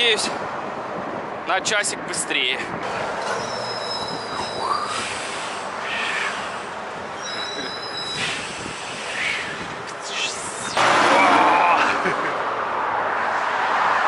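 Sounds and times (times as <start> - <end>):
highway traffic roar: 0.0 - 14.0
high steady whine: 4.3 - 12.4.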